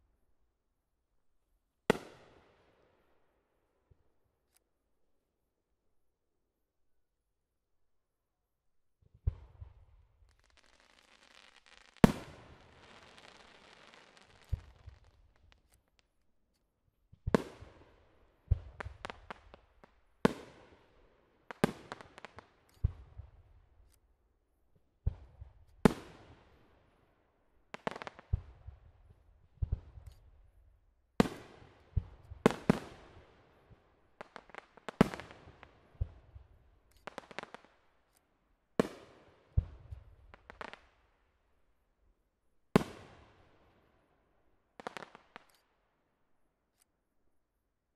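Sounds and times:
echoing tails and small pops: 1.9s - 4.6s, 9.0s - 24.1s, 25.0s - 41.3s, 42.7s - 46.0s
firework shells bursting: 10.2s - 16.2s.

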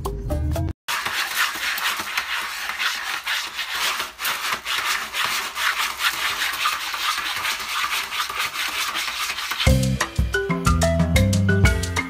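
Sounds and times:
cat scraping litter: 0.9s - 9.7s.

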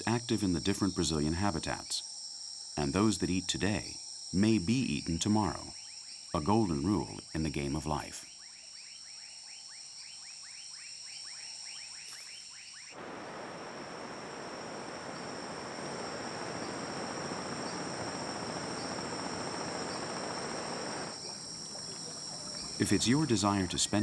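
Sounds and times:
insect chorus: 0.0s - 24.0s
even rushing noise: 13.0s - 21.2s
short chirping calls: 13.0s - 21.4s.

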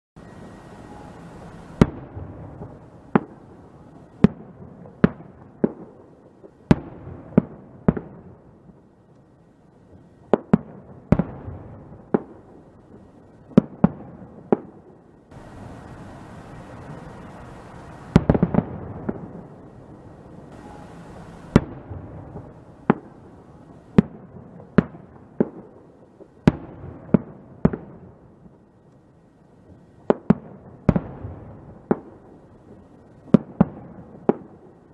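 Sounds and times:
low background hiss: 0.2s - 34.9s.

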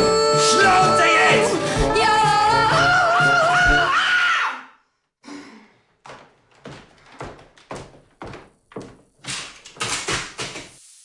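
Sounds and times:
footsteps on hard floor: 5.9s - 10.8s.

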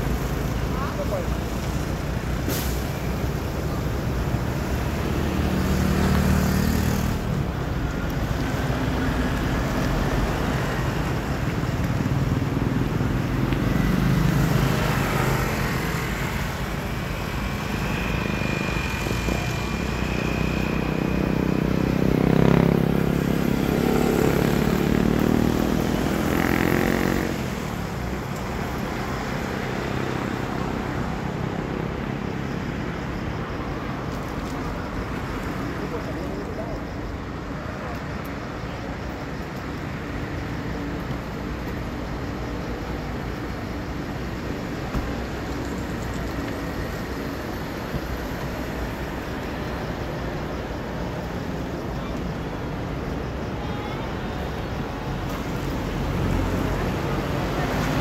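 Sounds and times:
road traffic: 0.0s - 58.0s
vehicle passing: 19.5s - 28.0s.

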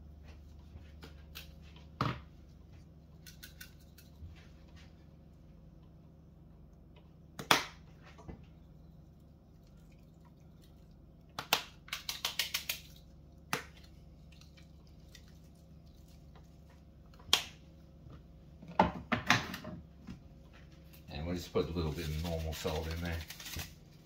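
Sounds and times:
faint low hum: 0.0s - 24.0s
seasoning shakers clicking: 3.2s - 4.2s, 11.8s - 13.1s.

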